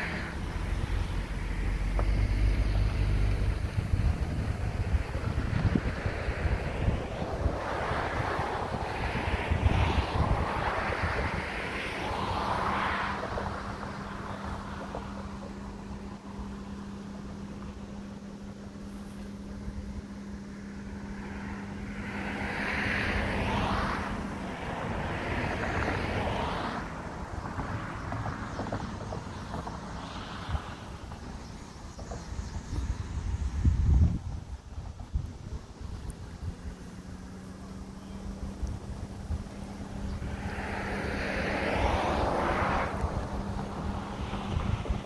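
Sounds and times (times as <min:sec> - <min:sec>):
wind gusting on microphone: 0:00.0 - 0:45.0
steady low hum: 0:13.2 - 0:25.2.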